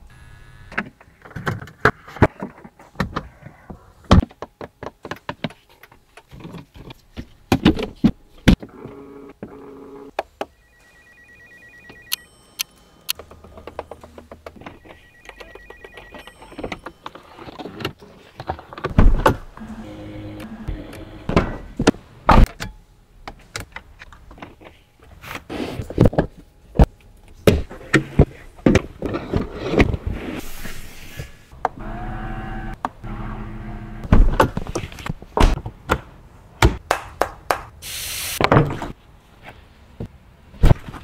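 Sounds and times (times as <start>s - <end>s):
electric motor whirring: 31.8s - 34.0s.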